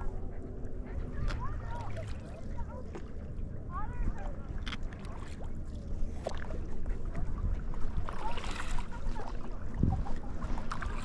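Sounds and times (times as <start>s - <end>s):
water sloshing around paddleboard: 0.0s - 11.0s
splashy rush of water: 7.4s - 11.0s.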